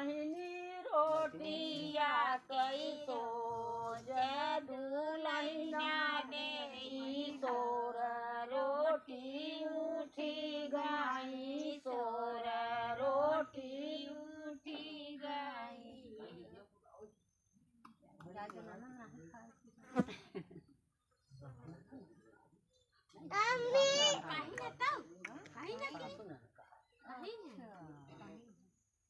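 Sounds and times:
women singing folk song: 0:00.0 - 0:16.4.

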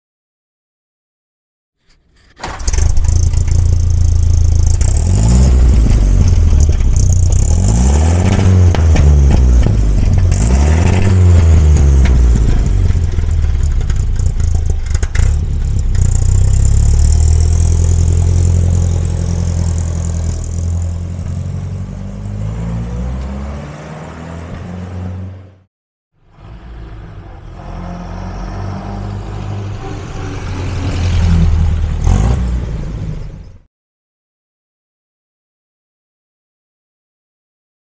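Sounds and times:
car engine revving: 0:02.4 - 0:25.7, 0:26.3 - 0:33.3.

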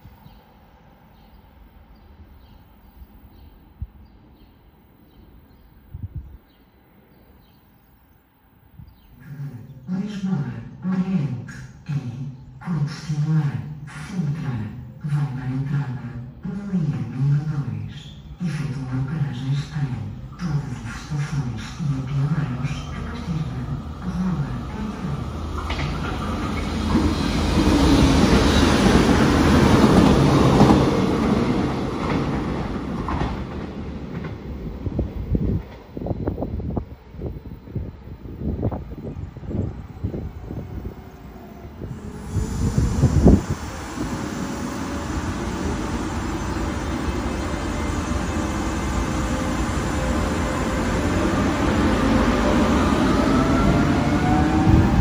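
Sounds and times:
train wheels on rails: 0:20.5 - 0:36.6, 0:41.8 - 0:55.0.

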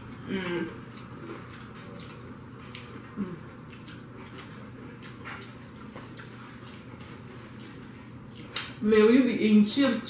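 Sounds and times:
chewing and mouth smacks: 0:00.0 - 0:08.8
person humming: 0:00.2 - 0:00.8.

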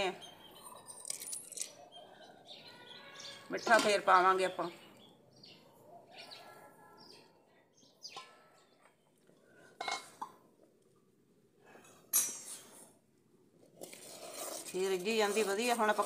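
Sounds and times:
metal pot lid clinking: 0:09.8 - 0:10.4.

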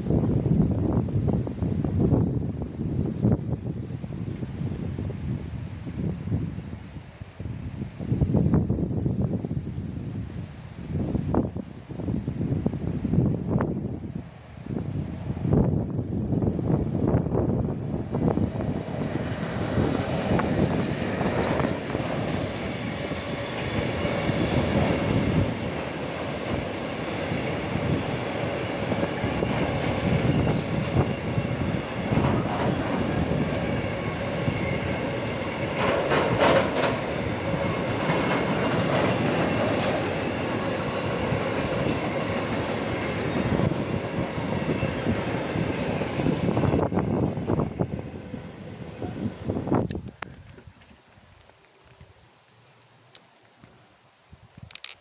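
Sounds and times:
freight train wheels clattering: 0:18.8 - 0:46.8.

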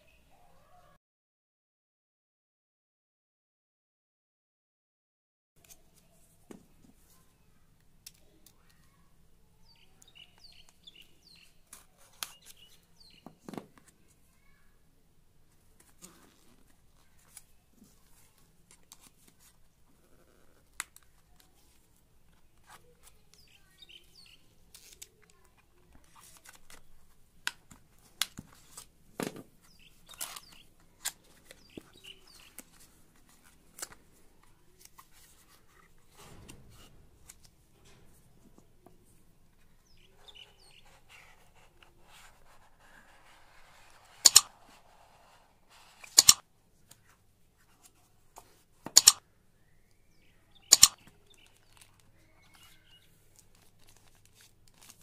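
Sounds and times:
loud sharp clicks: 0:44.2 - 0:44.5, 0:46.1 - 0:46.4, 0:48.9 - 0:49.2, 0:50.6 - 0:51.0.

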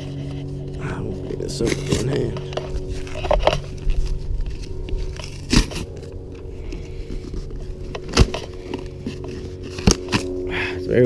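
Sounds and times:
cardboard tearing: 0:01.1 - 0:06.4, 0:07.2 - 0:10.4.

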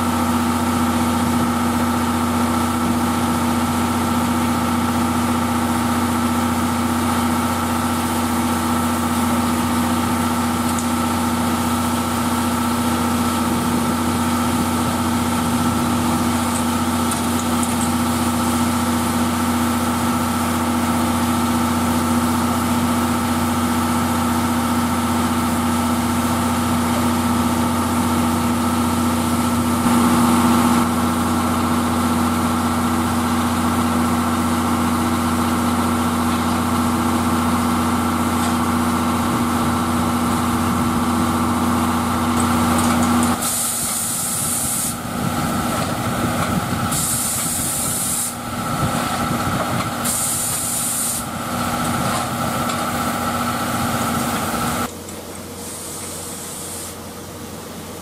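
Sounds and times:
locomotive machinery hum: 0:00.0 - 0:58.0
steam hissing: 0:43.4 - 0:49.0, 0:49.9 - 0:51.8, 0:55.6 - 0:57.1.

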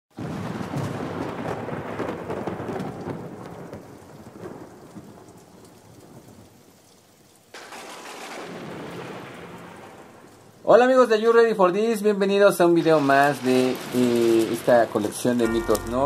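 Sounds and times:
rumbling thunder: 0:00.2 - 0:05.3, 0:07.6 - 0:10.3
rain hiss: 0:01.8 - 0:16.0.

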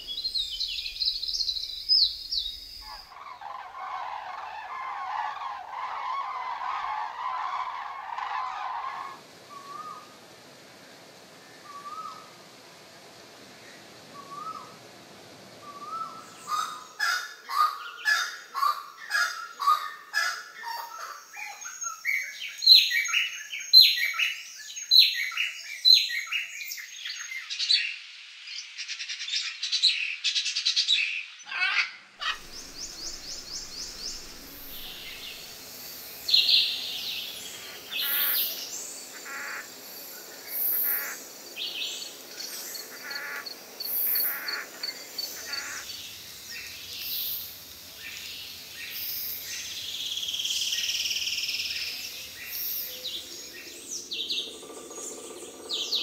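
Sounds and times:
birds chirping and whistling: 0:00.0 - 0:03.6, 0:32.2 - 0:39.4
bird calls and trills: 0:00.0 - 0:08.7, 0:09.5 - 0:10.2, 0:11.4 - 0:12.4, 0:13.6 - 0:14.8, 0:15.6 - 0:56.0.

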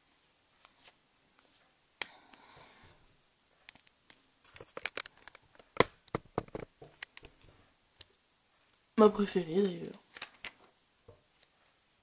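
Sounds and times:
small crackling clicks: 0:03.6 - 0:07.4, 0:09.6 - 0:10.6.

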